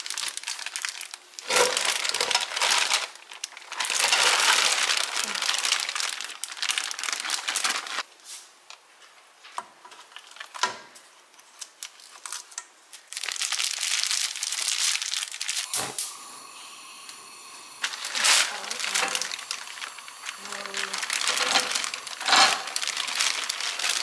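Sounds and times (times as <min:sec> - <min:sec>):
plastic bag crinkling: 0:00.0 - 0:08.1, 0:11.4 - 0:15.7, 0:17.8 - 0:24.0.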